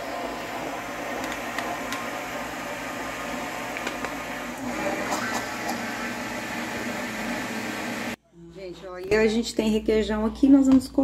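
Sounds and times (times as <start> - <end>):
electric blender running: 0.0 - 8.2.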